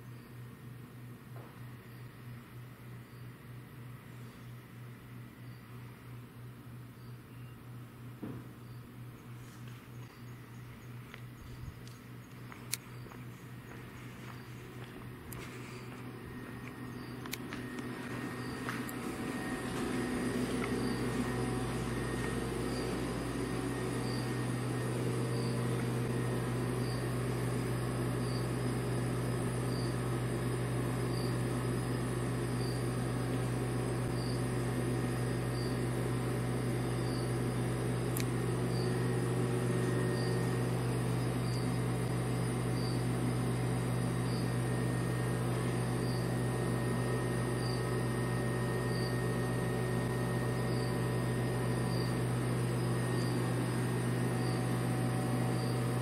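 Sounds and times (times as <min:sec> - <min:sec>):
insect chirping: 0:06.9 - 0:07.6, 0:08.6 - 0:09.3, 0:18.0 - 0:21.7, 0:22.6 - 0:27.1, 0:28.2 - 0:28.6, 0:34.1 - 0:34.5, 0:37.0 - 0:37.3, 0:40.1 - 0:43.1, 0:44.2 - 0:44.6, 0:46.0 - 0:46.3, 0:47.6 - 0:47.8, 0:48.8 - 0:49.2, 0:50.5 - 0:51.0, 0:51.9 - 0:52.2, 0:52.8 - 0:53.5, 0:54.3 - 0:54.8, 0:55.5 - 0:55.9
low hum: 0:09.1 - 0:56.0.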